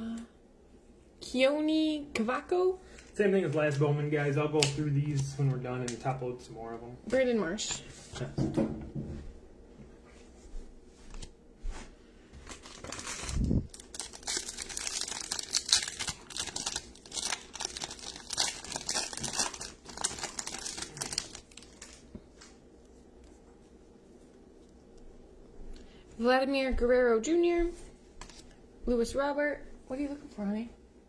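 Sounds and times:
handling cards: 12.4s - 25.1s
wrapper tearing and crumpling: 12.5s - 22.1s.

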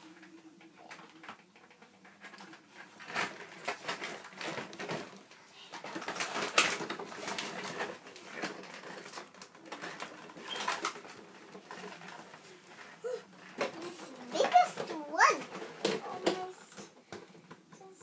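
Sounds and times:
plastic dolls knocking on a table: 14.4s - 16.5s.

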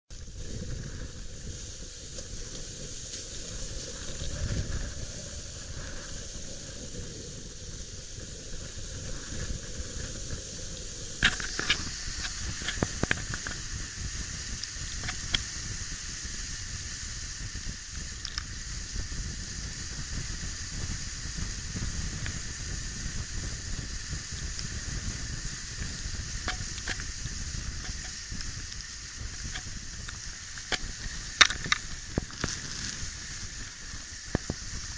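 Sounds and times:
wind buffeting microphone: 0.1s - 34.9s
water rushing and spraying: 0.2s - 18.9s.

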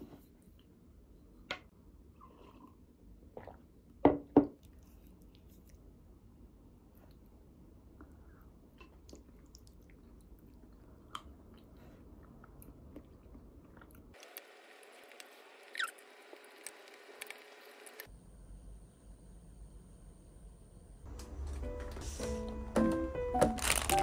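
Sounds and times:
chewing food: 8.0s - 18.1s.

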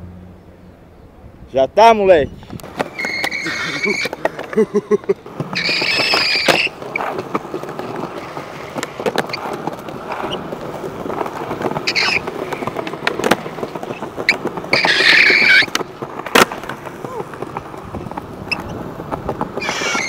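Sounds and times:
skateboard wheels rolling on stone: 2.4s - 20.0s
skateboard popping and landing: 2.5s - 20.0s
brief high squeals: 2.9s - 4.1s, 19.6s - 20.0s.

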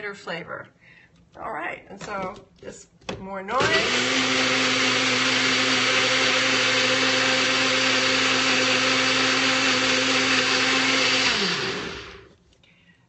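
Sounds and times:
electric blender running: 3.5s - 12.3s.

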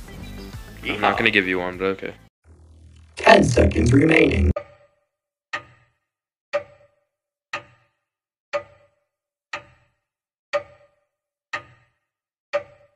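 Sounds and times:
countdown timer ticking: 6.6s - 7.0s, 8.6s - 10.0s, 10.6s - 12.0s, 12.6s - 12.9s.

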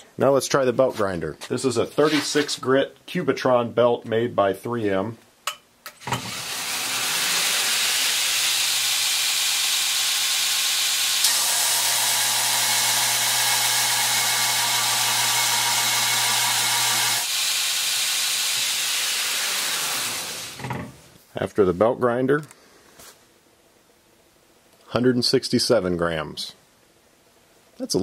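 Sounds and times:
belt grinder grinding steel: 6.0s - 20.8s.

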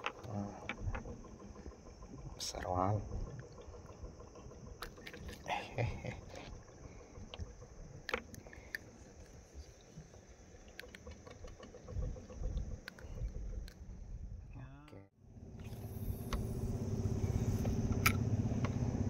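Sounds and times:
small clicks and rustles: 0.0s - 5.5s, 6.2s - 13.9s
low rumble: 0.0s - 8.7s.

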